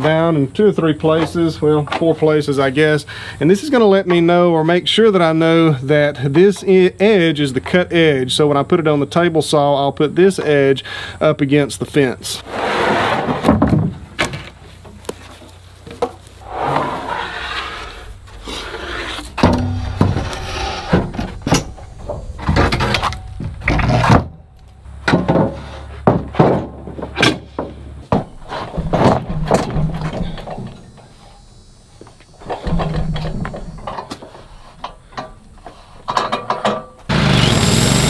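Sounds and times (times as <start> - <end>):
boards scraping on metal: 12.4 - 13.8, 16.3 - 24.4
wooden boards knocking: 25.0 - 30.0.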